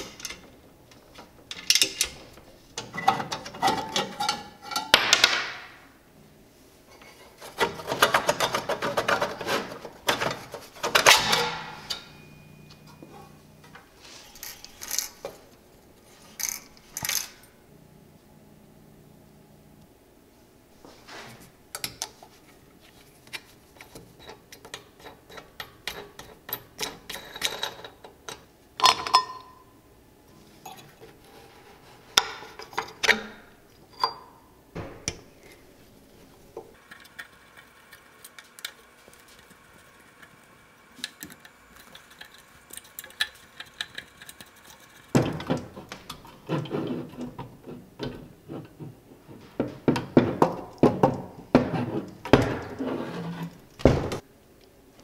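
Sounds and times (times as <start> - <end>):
metallic clicks and clinks of parts: 0.0 - 5.4, 13.7 - 15.4, 16.3 - 17.5, 23.3 - 29.5.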